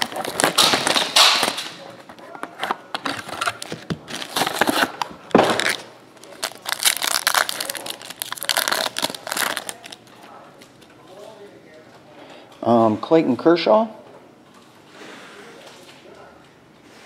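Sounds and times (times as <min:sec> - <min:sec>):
foil wrapper crinkling and tearing: 0:00.0 - 0:01.8, 0:02.6 - 0:10.7.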